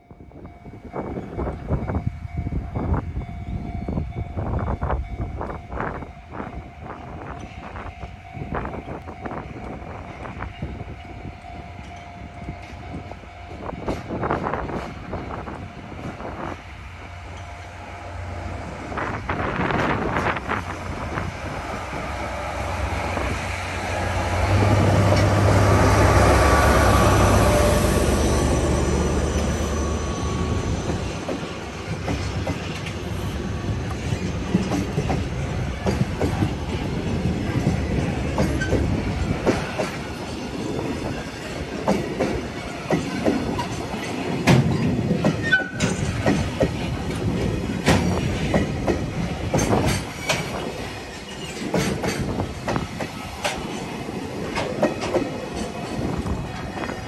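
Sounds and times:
diesel locomotive engine drone: 0:00.0 - 0:57.0
train wheels clattering on rail joints: 0:11.8 - 0:16.6, 0:19.0 - 0:21.3, 0:30.8 - 0:57.0.

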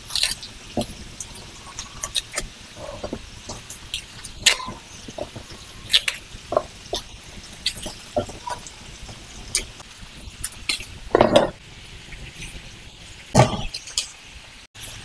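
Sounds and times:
knife scraping vegetable peel: 0:00.0 - 0:08.7.

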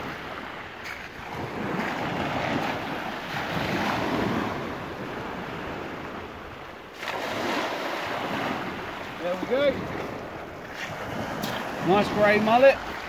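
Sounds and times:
small waves on pebble beach: 0:00.0 - 0:13.0
wind on microphone: 0:00.0 - 0:13.0
splashing net hauled from water: 0:07.0 - 0:08.8.

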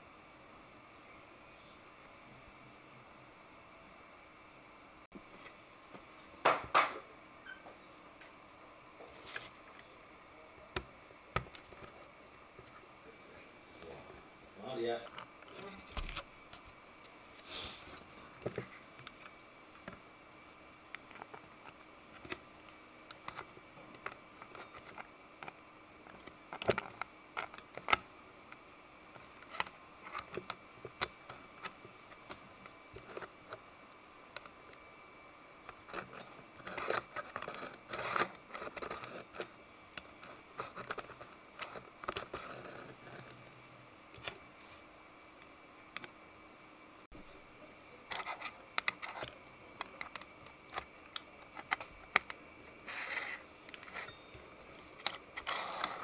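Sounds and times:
plastic rubbing and scraping: 0:35.7 - 0:39.5, 0:40.2 - 0:43.5, 0:48.1 - 0:54.1, 0:54.7 - 0:56.0
plastic parts clicking and tapping: 0:48.1 - 0:54.1.

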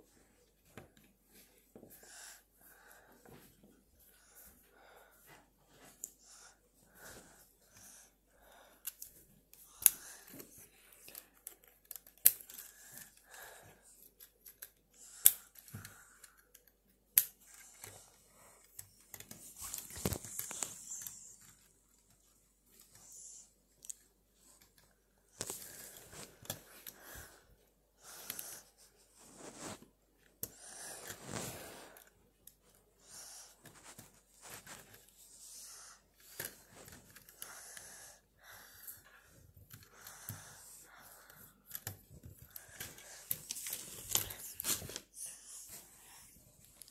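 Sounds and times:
rustling handling noise: 0:17.5 - 0:27.6, 0:28.2 - 0:30.4, 0:33.5 - 0:35.4, 0:41.6 - 0:46.9.

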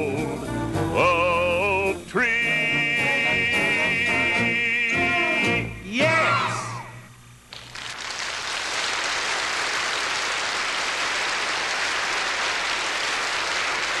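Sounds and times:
audience applauding: 0:07.5 - 0:14.0.

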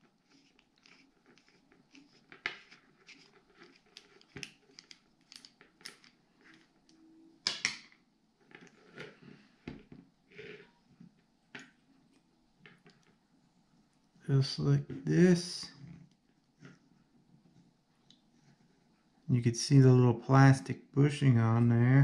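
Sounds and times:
fishing reel parts handled: 0:00.3 - 0:06.7.

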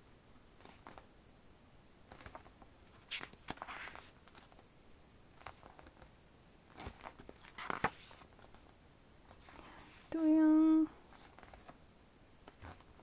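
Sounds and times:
book pages turning: 0:00.6 - 0:01.1, 0:02.1 - 0:04.7, 0:05.3 - 0:10.1, 0:11.1 - 0:11.8, 0:12.4 - 0:13.0.

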